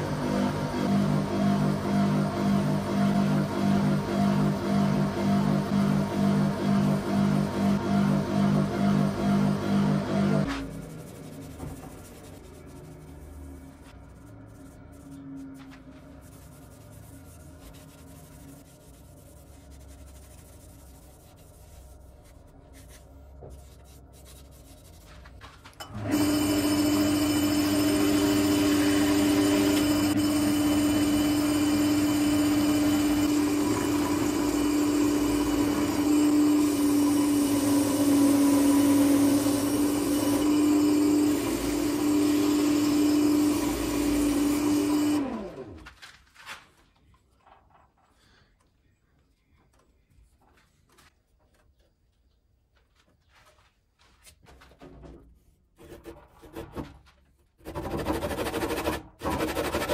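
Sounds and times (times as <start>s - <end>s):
wood lathe hum: 0.0s - 11.3s, 25.8s - 45.8s
sandpaper rubbing spinning wood: 10.4s - 25.4s, 57.6s - 59.9s.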